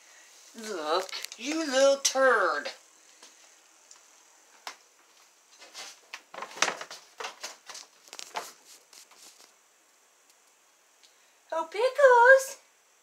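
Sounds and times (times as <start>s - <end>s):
footsteps: 2.6s - 9.6s.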